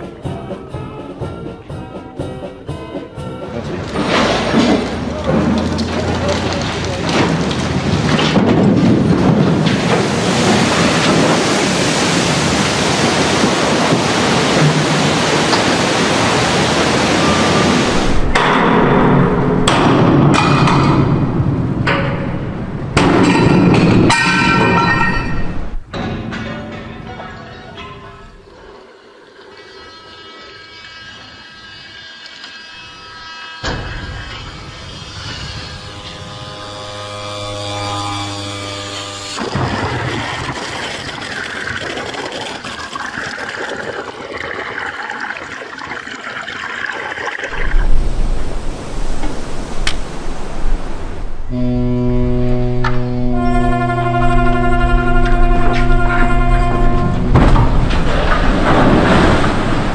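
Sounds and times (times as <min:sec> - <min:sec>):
wave of water splashing: 0:09.0 - 0:18.3, 0:39.4 - 0:51.5, 0:57.6 - 0:59.9
steady pitched drone: 0:28.4 - 0:39.8, 0:51.5 - 0:59.9.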